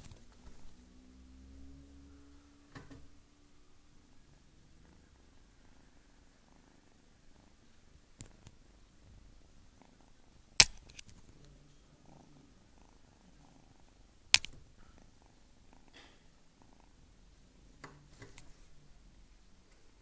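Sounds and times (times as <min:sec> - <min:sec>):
kitten purring: 0:00.0 - 0:20.0
sharp clicks: 0:10.6 - 0:11.3, 0:14.3 - 0:14.6.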